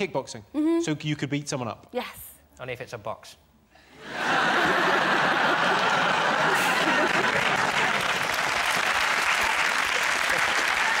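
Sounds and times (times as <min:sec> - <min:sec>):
audience laughing: 0:04.0 - 0:08.5, 0:09.9 - 0:11.0
audience applauding: 0:04.3 - 0:11.0.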